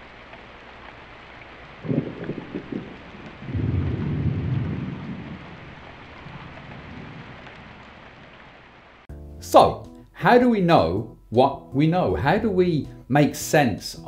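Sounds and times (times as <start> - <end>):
steady rain: 0.0 - 9.1
thunder crackling and rumbling: 1.6 - 8.5.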